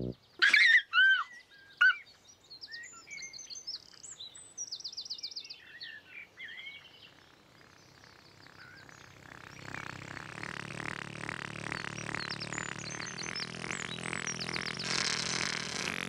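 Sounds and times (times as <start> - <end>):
birds chirping and whistling: 11.7 - 15.6.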